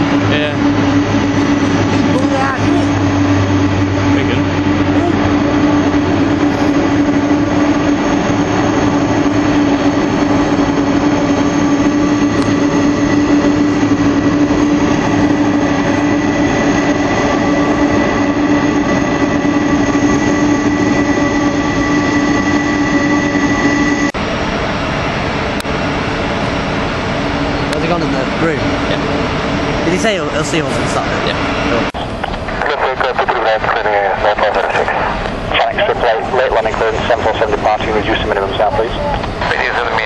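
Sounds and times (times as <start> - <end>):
jet engines running: 0.0 - 40.0.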